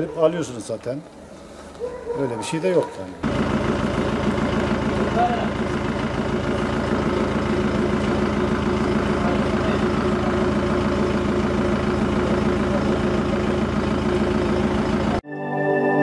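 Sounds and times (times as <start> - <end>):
van engine idling: 3.0 - 15.2.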